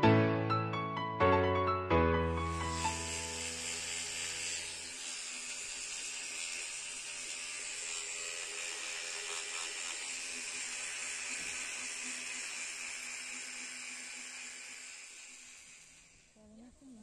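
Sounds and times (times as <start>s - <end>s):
background music: 0.0s - 3.9s
electric toothbrush humming: 2.2s - 17.0s.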